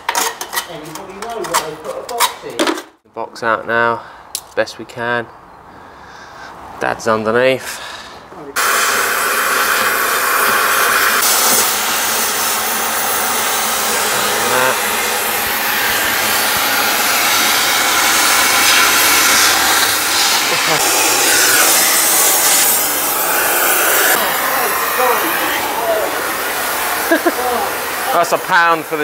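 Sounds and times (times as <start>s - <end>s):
cutting torch hissing: 8.6s - 29.0s.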